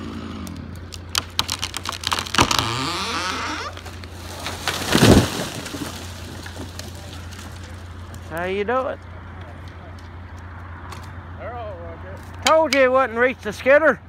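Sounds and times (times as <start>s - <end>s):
chainsaw engine: 0.0s - 7.9s
tree trunk cracking: 0.0s - 11.2s
tree crashing to ground: 0.8s - 8.6s.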